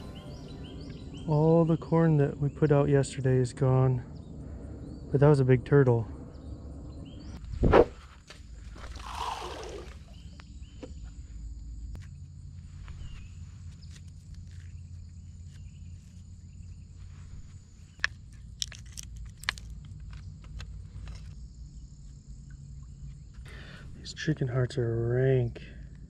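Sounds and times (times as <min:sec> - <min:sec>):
high insect trill: 0:00.0 - 0:07.3, 0:08.0 - 0:25.4
bait splashing into river: 0:08.6 - 0:10.3.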